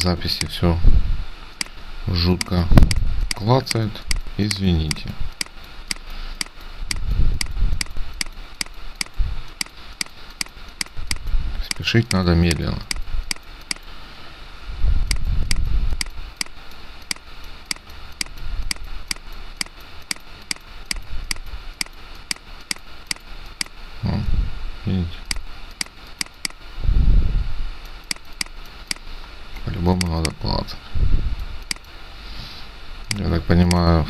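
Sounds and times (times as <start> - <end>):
computer mouse clicking: 2.4 - 13.9, 15.1 - 23.8, 25.3 - 26.6, 27.8 - 30.4, 31.6 - 32.0, 33.1 - 33.8.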